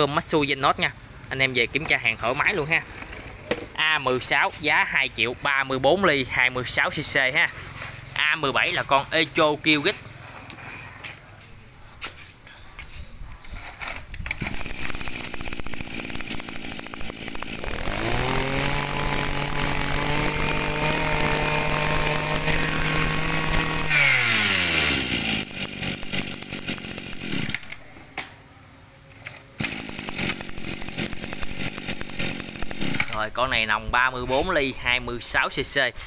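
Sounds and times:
brush cutter engine revving: 14.3s - 27.8s, 29.6s - 33.4s.

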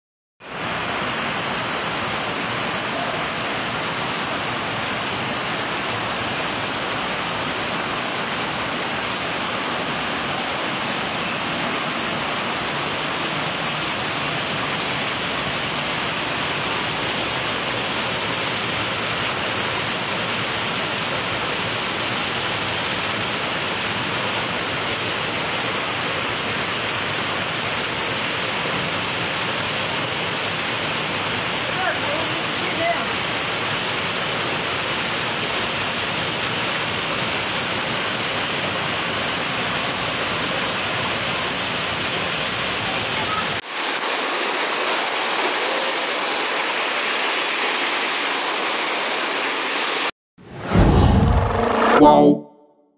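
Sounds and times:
rain on roof: 0.4s - 50.1s
rainwater pouring: 43.6s - 50.1s.

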